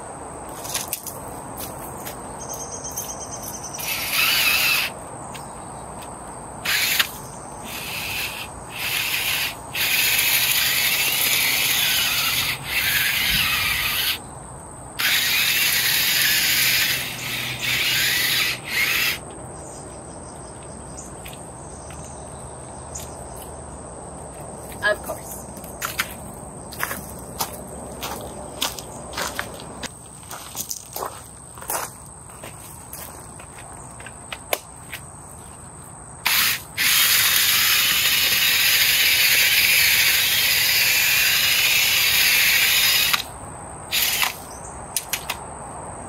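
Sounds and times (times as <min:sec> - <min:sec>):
cordless drill spinning auger bit: 0:03.8 - 0:05.0, 0:06.6 - 0:14.2, 0:15.0 - 0:19.2, 0:36.3 - 0:43.3, 0:43.9 - 0:44.4
gravel scraping against drill bit: 0:03.8 - 0:05.0, 0:06.6 - 0:14.2, 0:15.0 - 0:19.3, 0:36.2 - 0:43.3, 0:43.9 - 0:44.4.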